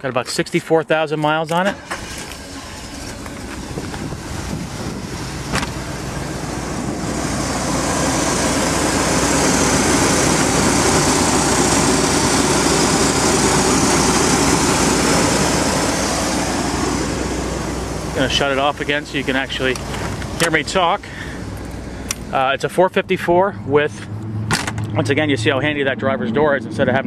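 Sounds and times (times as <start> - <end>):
engine running: 1.5 - 27.0.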